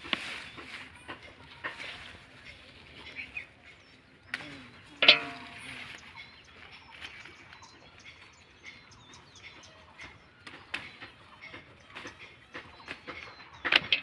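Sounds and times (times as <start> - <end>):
rustle of leaves: 0.0 - 7.6
small birds chirping: 0.0 - 14.0.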